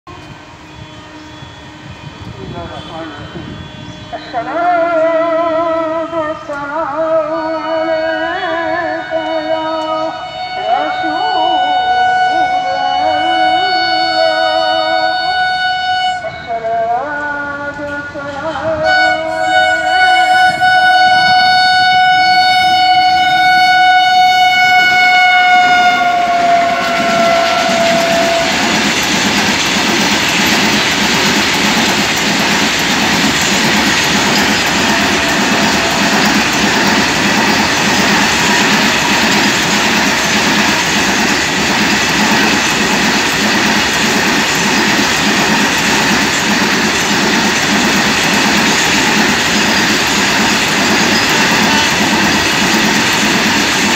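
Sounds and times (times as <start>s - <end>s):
locomotive air horn blast: 8.8s - 16.6s, 18.7s - 28.8s, 34.6s - 37.5s
freight train rumble and clatter: 10.2s - 53.9s.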